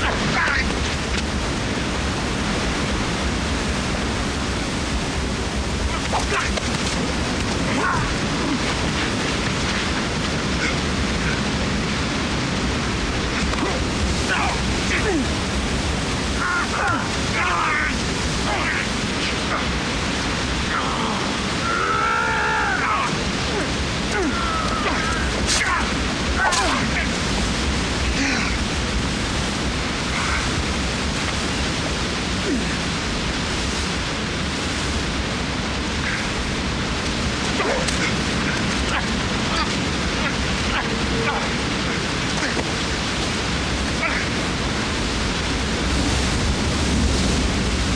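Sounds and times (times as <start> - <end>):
waterfall and river rushing: 0.0 - 47.9
man groaning and whimpering: 7.6 - 8.9, 13.6 - 15.4, 20.6 - 27.2, 28.1 - 28.7, 32.4 - 32.9, 37.6 - 42.7.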